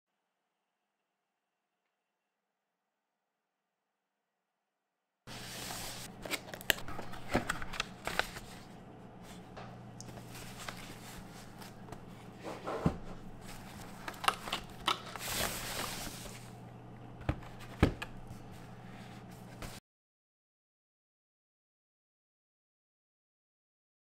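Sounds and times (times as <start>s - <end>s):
cardboard and plastic rustling: 5.3s - 9.4s, 10.1s - 16.6s, 17.2s - 19.8s
faint steady hum: 5.3s - 19.8s.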